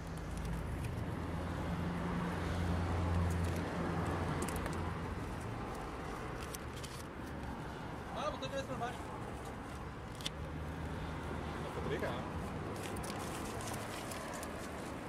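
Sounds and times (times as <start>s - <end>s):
paper being handled: 12.7s - 15.0s.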